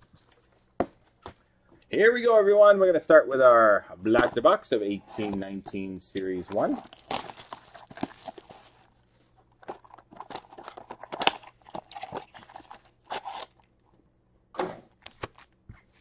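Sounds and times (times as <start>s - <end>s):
plastic shrink wrap tearing: 6.3s - 8.9s, 9.6s - 13.7s.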